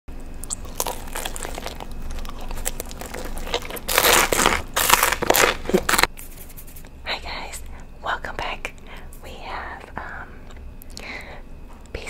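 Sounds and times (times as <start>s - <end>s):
crackly chewing clicks: 0.3s - 6.1s
loud crisp crunches: 0.4s - 6.8s.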